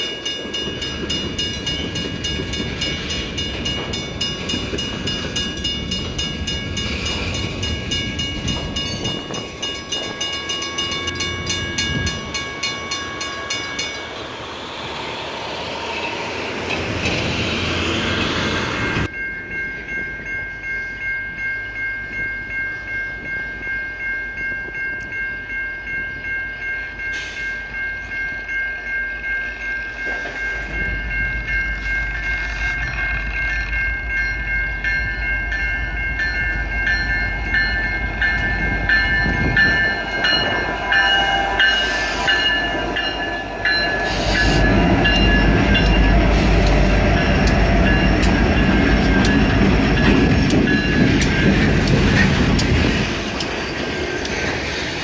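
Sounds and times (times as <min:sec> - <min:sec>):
level-crossing bell ringing: 0:00.0 - 0:14.4, 0:19.0 - 0:51.9
diesel locomotive engine rumble: 0:00.0 - 0:55.0
train wheels clacking over rail joints: 0:38.2 - 0:55.0.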